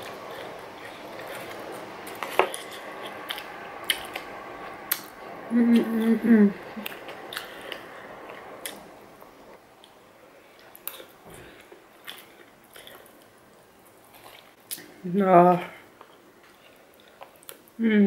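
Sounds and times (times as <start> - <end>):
person chewing noodles: 0.0 - 4.3, 6.8 - 8.8, 9.8 - 14.8, 15.9 - 17.7.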